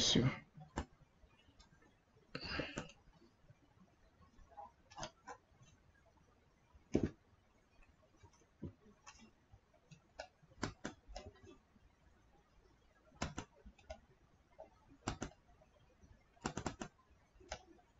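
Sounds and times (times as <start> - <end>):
computer mouse and keyboard clicks: 4.6 - 5.4, 8.2 - 11.6, 13.2 - 14.0, 14.6 - 15.4, 16.4 - 17.8.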